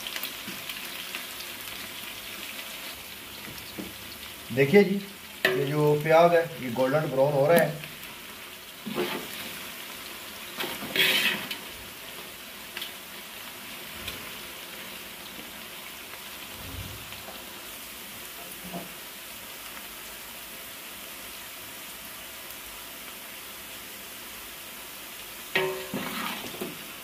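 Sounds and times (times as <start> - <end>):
onions sizzling in hot oil: 0.0 - 27.0
metal spoon scraping a pot: 10.6 - 11.6, 25.6 - 26.7.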